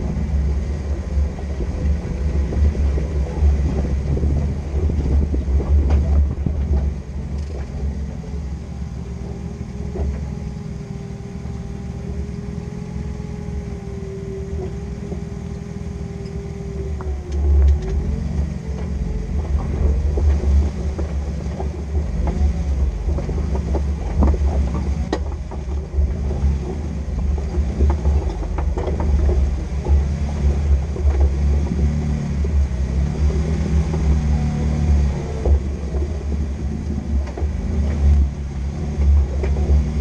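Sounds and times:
vehicle knocks and rattles: 0:00.0 - 0:08.3, 0:16.8 - 0:40.0
vehicle engine rumbling: 0:00.0 - 0:40.0.

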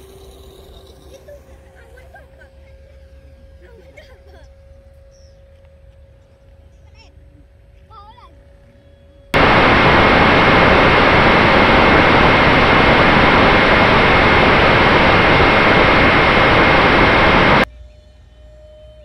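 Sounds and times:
electric fan motor whining hiss: 0:09.4 - 0:17.7.

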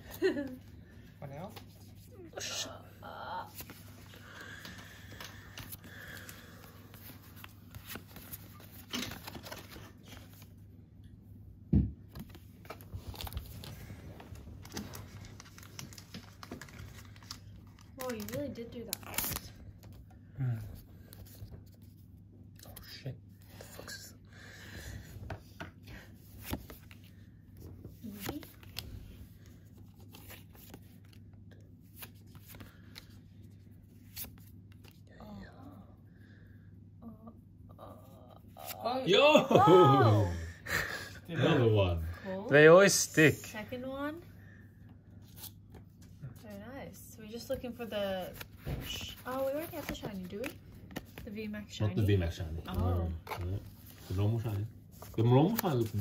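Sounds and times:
trading cards rustling: 0:03.5 - 0:10.6, 0:12.2 - 0:20.1, 0:25.4 - 0:35.0, 0:47.7 - 0:56.0.

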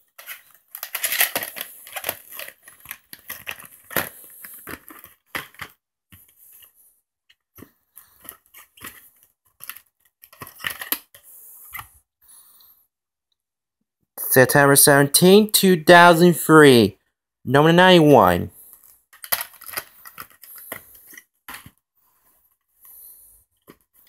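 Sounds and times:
plastic rustling: 0:00.0 - 0:05.7
plastic cases clacking: 0:00.2 - 0:05.7.

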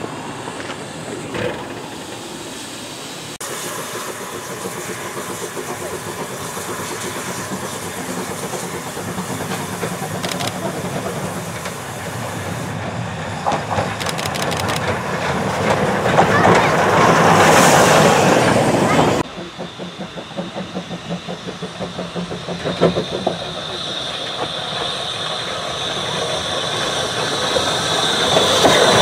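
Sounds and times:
wheels clanking over rail joints: 0:00.0 - 0:02.5
steam locomotive hissing steam: 0:00.0 - 0:29.0.

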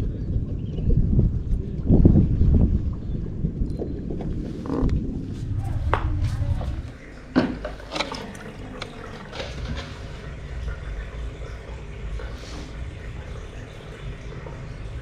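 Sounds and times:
wind buffeting microphone: 0:00.0 - 0:07.3
water splashing and dripping: 0:05.8 - 0:15.0.

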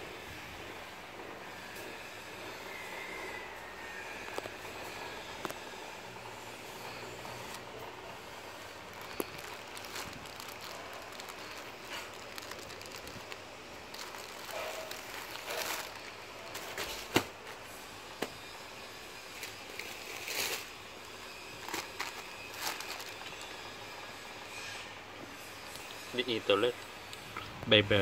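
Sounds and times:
plastic rustling and crinkling: 0:06.7 - 0:18.6, 0:19.2 - 0:24.7
scissors cutting plastic packaging: 0:08.7 - 0:17.3, 0:19.3 - 0:20.8, 0:21.5 - 0:23.6.

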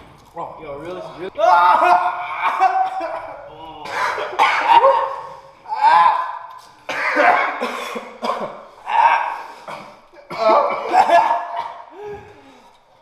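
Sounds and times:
people coughing: 0:02.4 - 0:05.5, 0:06.8 - 0:08.8, 0:09.5 - 0:12.4
strained voiced cries: 0:08.8 - 0:09.6.

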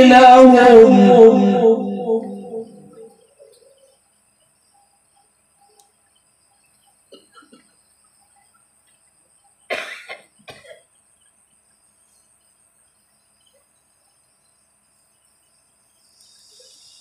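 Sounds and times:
man coughing: 0:09.7 - 0:10.8.

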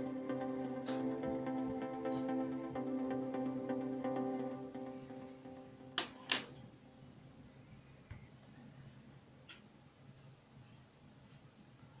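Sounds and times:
pencil scratching on paper: 0:10.1 - 0:11.5.

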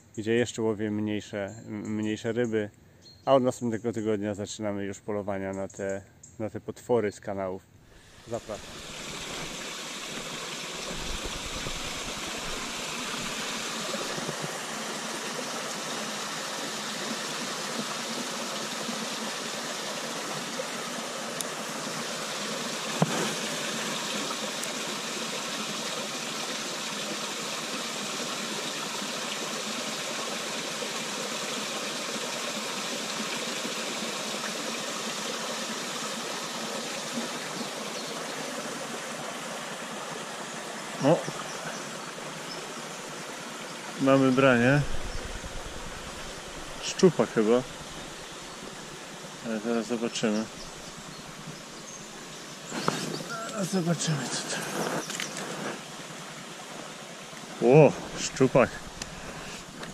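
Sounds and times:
water rushing through lock gates: 0:44.0 - 0:51.5.

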